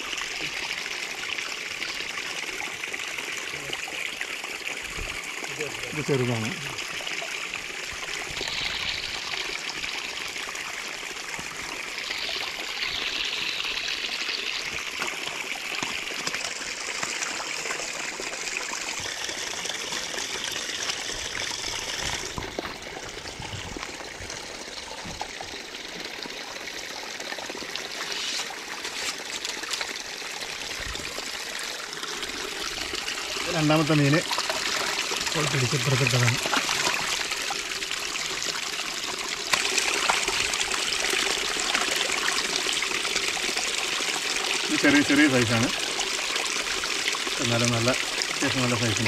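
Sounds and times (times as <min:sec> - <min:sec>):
water trickling through stones: 0:00.0 - 0:49.0.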